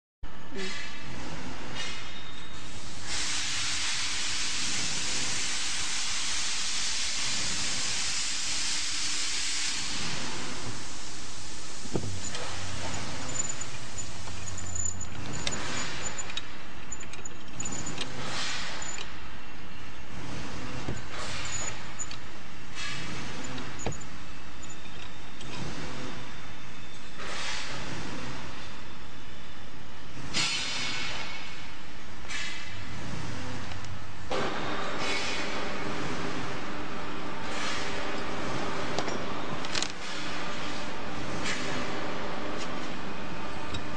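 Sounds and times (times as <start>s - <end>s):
steady background noise: 0.3s - 43.9s
loud steady hiss: 2.6s - 14.6s
cable swishing through rollers: 20.0s - 26.4s.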